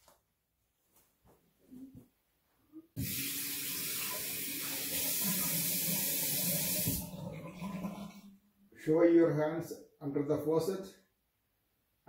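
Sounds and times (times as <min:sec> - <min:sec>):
faucet water running into sink: 0:03.0 - 0:08.2.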